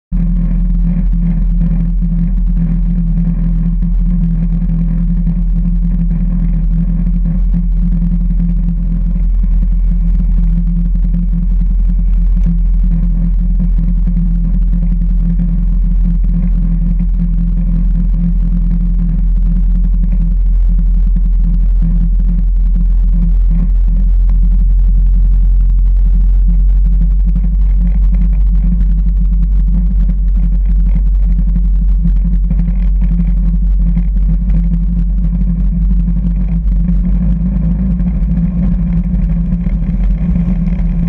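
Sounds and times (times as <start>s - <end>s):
propeller plane engine droning: 0.0s - 41.0s.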